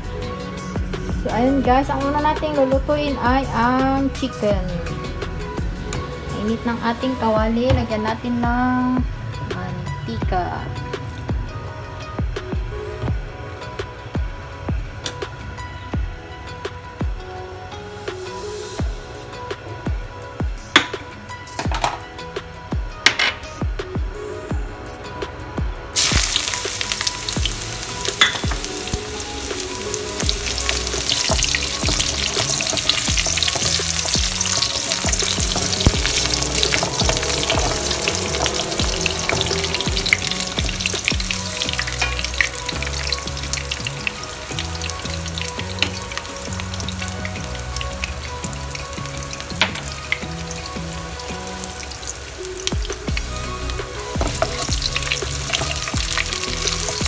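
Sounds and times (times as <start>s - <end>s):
ginger sizzling in hot oil: 26.0s - 57.0s.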